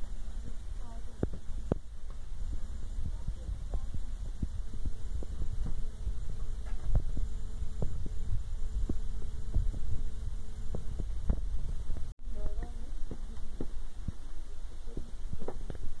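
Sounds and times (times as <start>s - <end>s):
faint steady hum: 0.0s - 16.0s
wind buffeting microphone: 0.7s - 12.1s.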